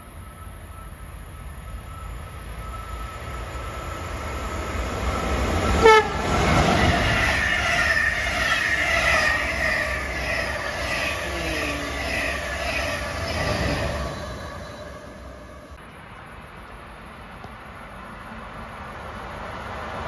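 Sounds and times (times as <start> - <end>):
train wheels on rails: 0.0 - 16.7
train rumble: 0.0 - 19.5
train horn blast: 5.7 - 12.6.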